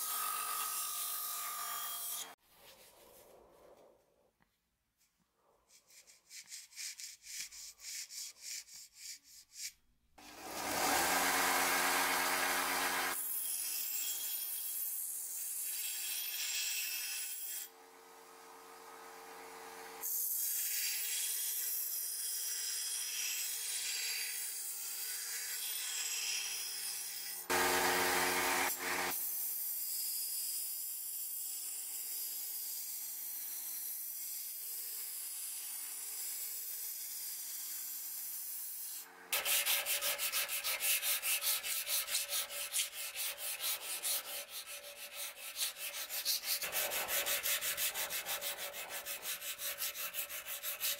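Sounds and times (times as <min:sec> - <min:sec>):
belt grinder running: 0:10.2 - 0:13.2, 0:27.5 - 0:29.2
steel rasping on grinder belt: 0:10.3 - 0:13.2, 0:27.3 - 0:29.2, 0:38.9 - 0:50.9.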